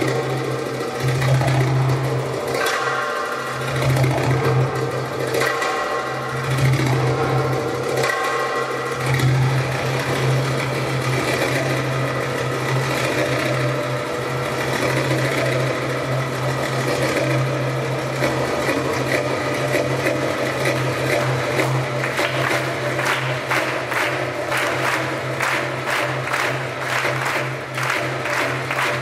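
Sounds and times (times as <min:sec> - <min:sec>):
belly-dance music over loudspeakers: 0:20.7 - 0:29.0.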